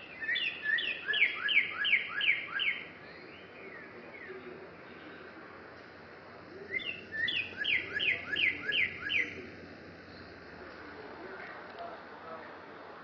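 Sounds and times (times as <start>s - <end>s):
bird singing down-slurred whistles: 0.1s - 4.3s, 6.7s - 9.4s.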